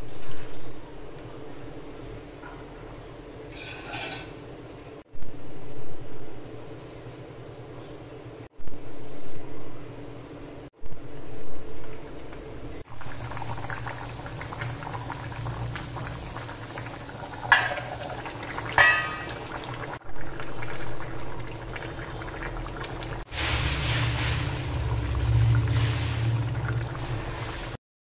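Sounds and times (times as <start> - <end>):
curry bubbling at a boil: 12.8 - 27.8.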